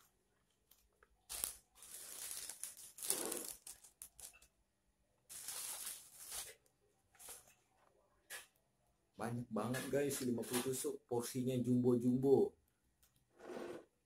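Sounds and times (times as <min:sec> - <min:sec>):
paper wrapping rustling: 0:00.7 - 0:04.6, 0:05.3 - 0:07.6.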